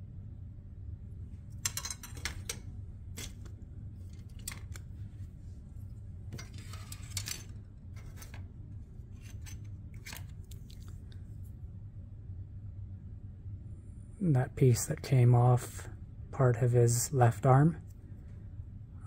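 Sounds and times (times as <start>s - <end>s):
plastic parts clicking and clacking: 1.6s - 4.9s, 6.3s - 8.4s.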